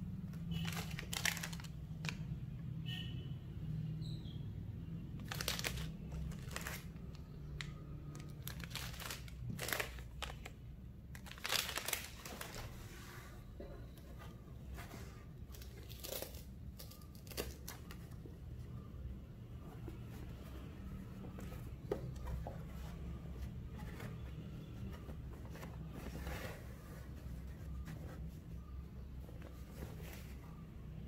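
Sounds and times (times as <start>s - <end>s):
plastic packaging crinkling: 0.5s - 2.2s, 5.2s - 7.2s, 8.1s - 12.8s.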